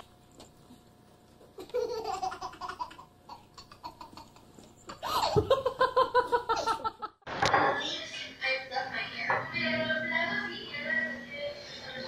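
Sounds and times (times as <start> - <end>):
baby laughing: 1.5 - 7.0.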